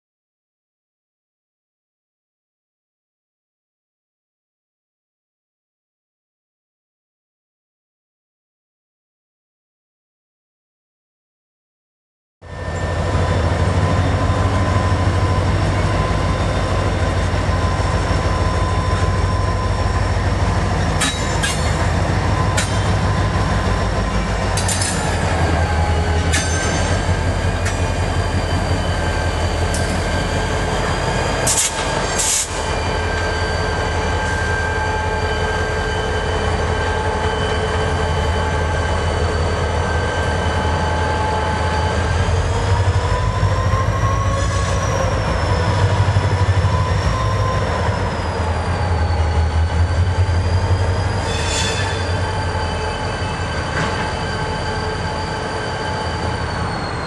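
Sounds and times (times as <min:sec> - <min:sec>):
freight train rumble: 0:12.4 - 0:57.0
high ringing wheel squeal: 0:12.4 - 0:57.0.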